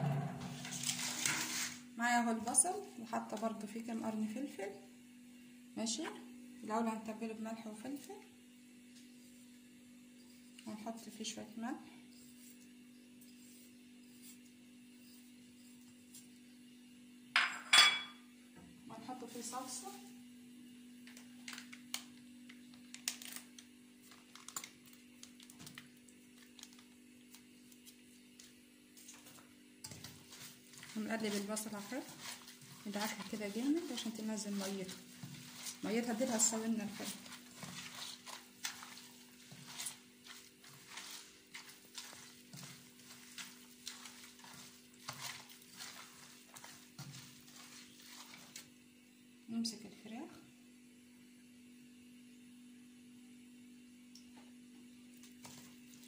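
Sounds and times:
low hum: 0:00.0 - 0:01.0
hands squishing wet onion in pan: 0:12.0 - 0:16.7, 0:22.8 - 0:48.9
steady low hum: 0:24.8 - 0:56.0.

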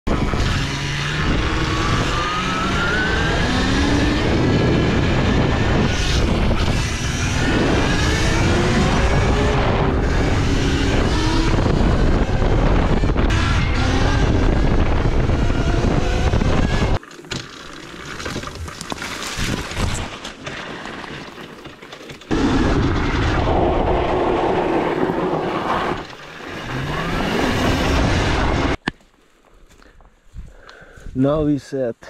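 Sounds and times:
wind rushing over microphone: 0:00.1 - 0:17.0, 0:22.3 - 0:26.1
tyre noise: 0:04.0 - 0:30.6.

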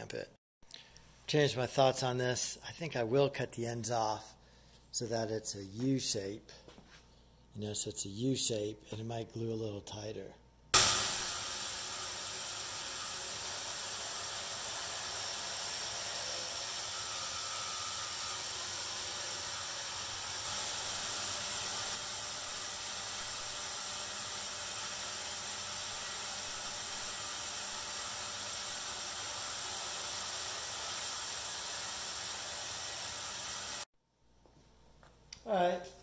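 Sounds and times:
bandsaw cutting wood: 0:10.8 - 0:33.9.

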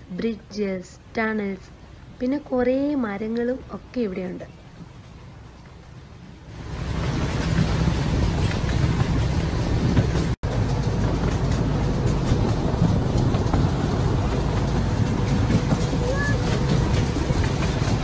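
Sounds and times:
miniature train rumbling: 0:00.0 - 0:18.0.

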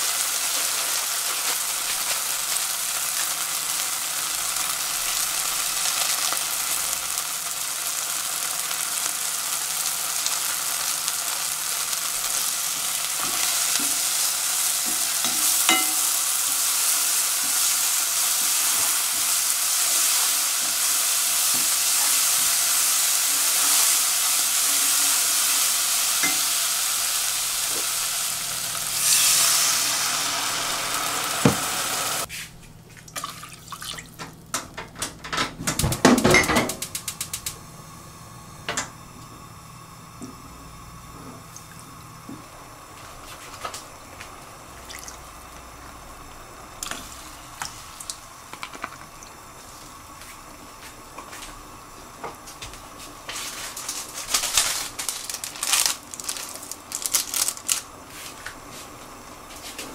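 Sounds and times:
food sizzling in a pot: 0:00.0 - 0:32.4, 0:36.0 - 0:59.9
water pouring into a pot: 0:33.1 - 0:34.1, 0:44.7 - 0:45.3.

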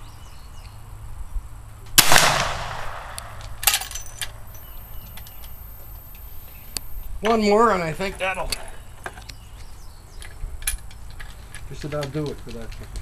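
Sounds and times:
rifle shot with echo: 0:02.0 - 0:03.8.

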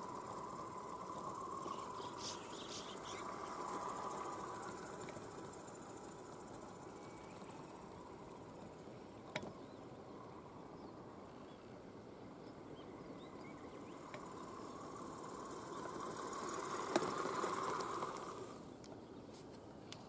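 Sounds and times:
toy truck electric motor whining: 0:14.1 - 0:18.7.

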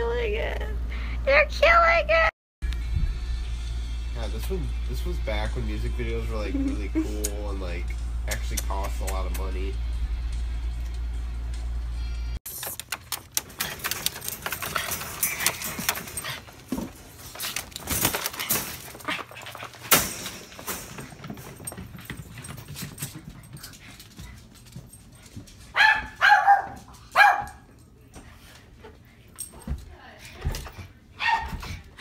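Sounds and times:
wire dog crate rattling: 0:12.6 - 0:27.6
dog barking: 0:25.7 - 0:27.7, 0:31.2 - 0:31.8.

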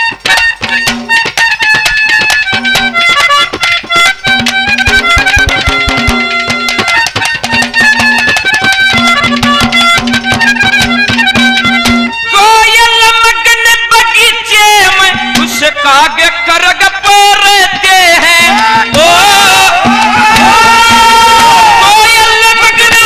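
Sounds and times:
folk band instrumental: 0:00.0 - 0:23.0
fast dense drumming: 0:04.2 - 0:12.0, 0:18.4 - 0:22.0.

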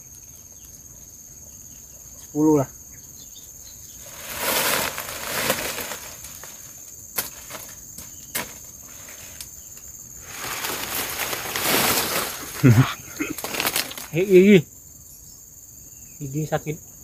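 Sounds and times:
insects droning: 0:00.0 - 0:17.0
dry leaves rustling: 0:04.0 - 0:14.5
sharp cracks: 0:04.2 - 0:08.6, 0:10.3 - 0:14.3.

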